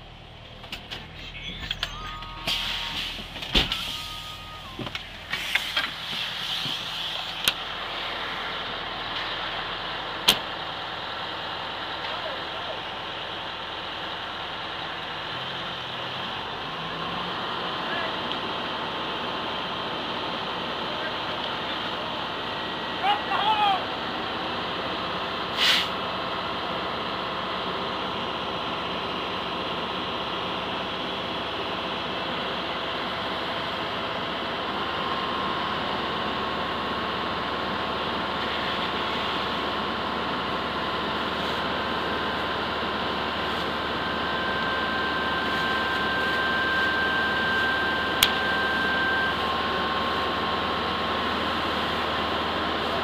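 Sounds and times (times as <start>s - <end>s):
fire engine droning: 0.0s - 53.0s
thin whine tone: 0.4s - 9.8s, 40.4s - 52.1s.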